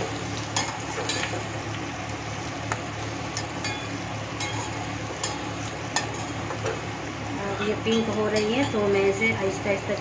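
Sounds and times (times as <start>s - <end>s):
frying sizzle: 0.0s - 10.0s
metal spatula clinking on pot: 7.9s - 8.9s.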